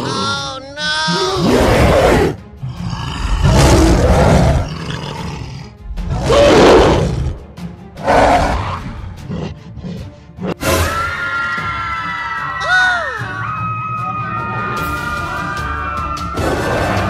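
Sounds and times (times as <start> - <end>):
background music: 0.0 - 17.0
giant ape roaring: 1.1 - 7.4, 8.0 - 10.7, 16.4 - 17.0.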